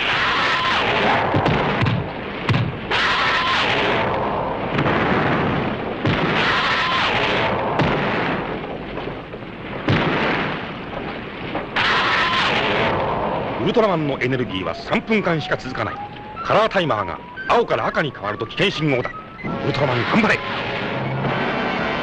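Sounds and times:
roar of flames: 0.0s - 15.4s
explosion blasts: 0.0s - 16.3s, 19.4s - 22.0s.

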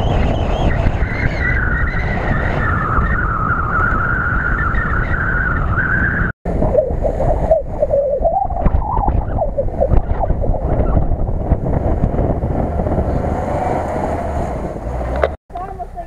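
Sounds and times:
wind rumble on microphone: 0.0s - 15.4s
car engine revving: 11.5s - 15.4s.

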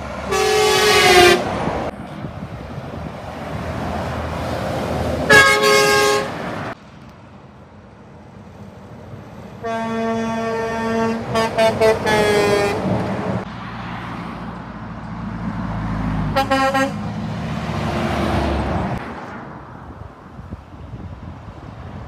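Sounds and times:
truck diesel engine passing: 0.0s - 22.0s
truck tyres on road: 0.0s - 22.0s
truck air horn blasts: 0.2s - 1.6s, 5.3s - 6.7s, 9.6s - 13.0s, 16.3s - 17.1s.

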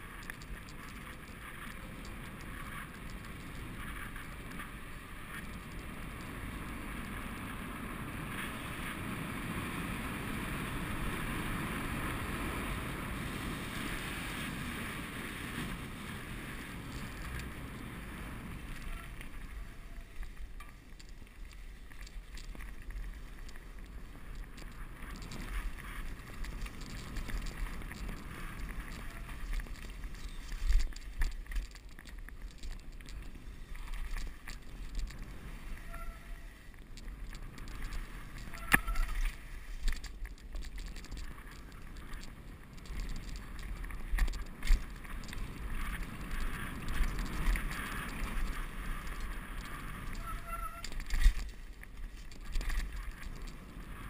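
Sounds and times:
bicycle rolling on dirt trail: 0.0s - 54.0s
bicycle tyres on asphalt: 0.0s - 54.0s
bicycle knocks and rattles: 14.5s - 54.0s.

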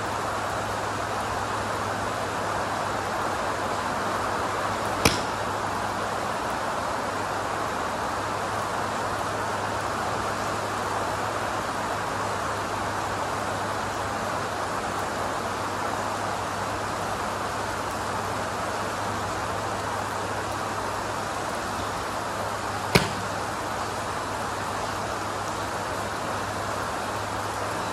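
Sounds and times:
steady rain hissing: 0.0s - 27.9s
golf club striking ball: 5.0s - 5.6s, 22.9s - 23.5s.

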